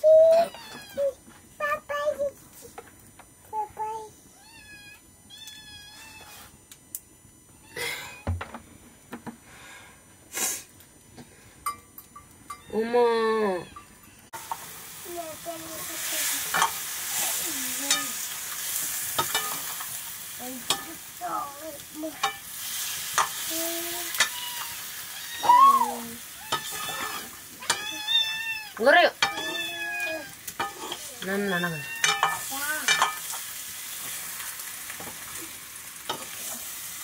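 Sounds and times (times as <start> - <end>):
cat meowing: 4.4 - 6.4, 24.1 - 27.0, 27.6 - 30.4, 31.4 - 32.3
chicken frying in hot oil: 14.4 - 37.0
ladle scraping a wok: 26.5 - 27.8, 30.6 - 31.2.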